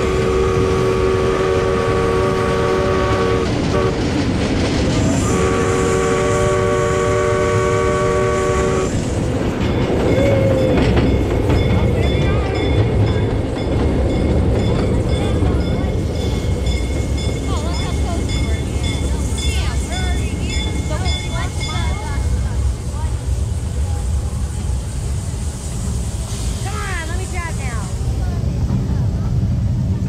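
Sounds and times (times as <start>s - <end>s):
train horn chord: 0.0s - 4.0s, 5.2s - 9.0s
train running rumble: 0.0s - 30.0s.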